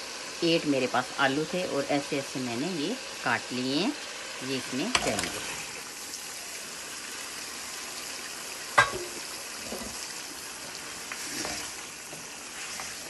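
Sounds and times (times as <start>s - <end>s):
potatoes sizzling in hot oil: 0.0s - 13.0s
spoon scraping and knocking pan: 8.8s - 13.0s.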